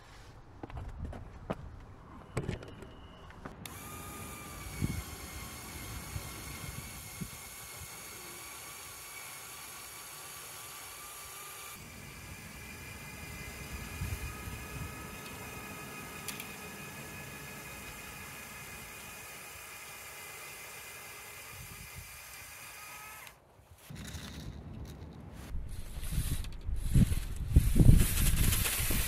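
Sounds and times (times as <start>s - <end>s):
electric motor whining: 3.6s - 23.4s.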